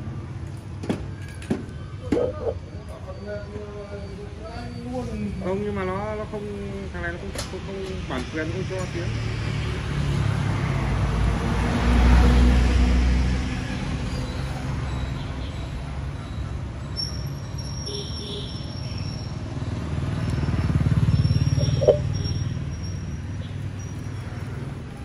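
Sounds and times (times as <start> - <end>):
vehicle approaching: 19.4 - 25.0
vehicle passing: 19.6 - 25.0.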